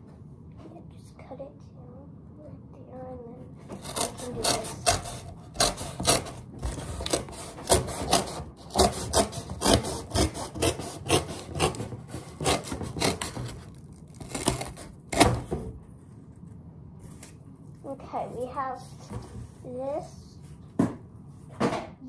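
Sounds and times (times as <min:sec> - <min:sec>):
knife sawing through cardboard: 0:03.8 - 0:15.5.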